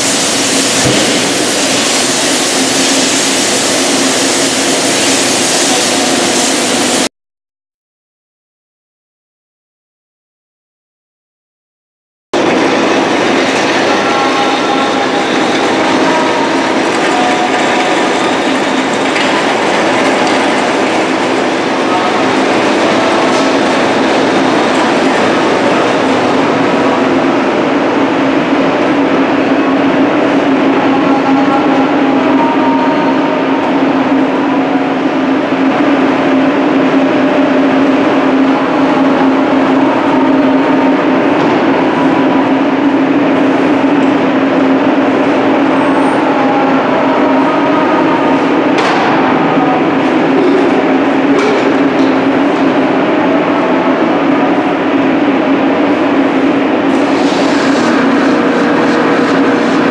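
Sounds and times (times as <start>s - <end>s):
extraction fans rushing air: 12.4s - 31.1s, 33.2s - 59.9s.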